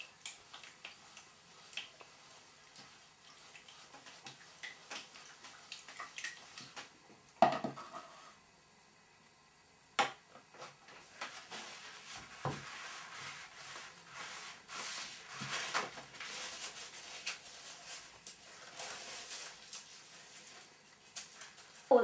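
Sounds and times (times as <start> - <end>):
toilet paper rustling and tearing: 11.0 - 22.0.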